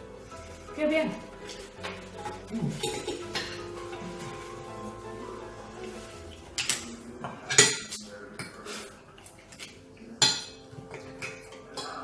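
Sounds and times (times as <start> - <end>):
cutlery clinking on plates: 1.8 - 4.4, 6.5 - 12.0.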